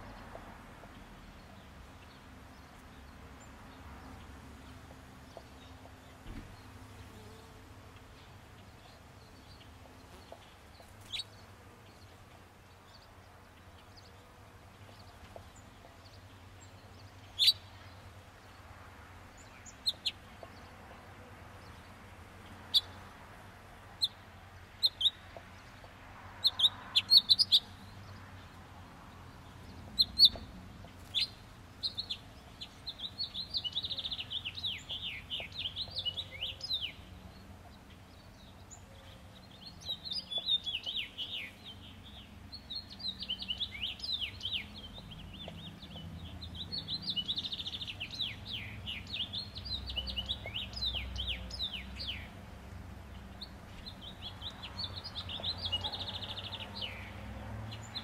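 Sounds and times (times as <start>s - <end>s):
small birds chirping: 0.0s - 58.0s.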